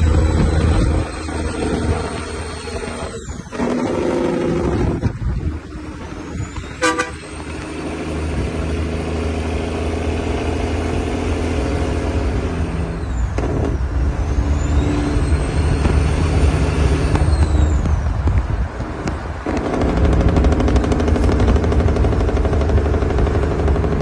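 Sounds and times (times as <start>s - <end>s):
deep diesel engine rumble: 0.0s - 24.0s
turbo whistling: 6.0s - 7.7s, 12.8s - 18.0s
short horn toot: 6.7s - 7.4s.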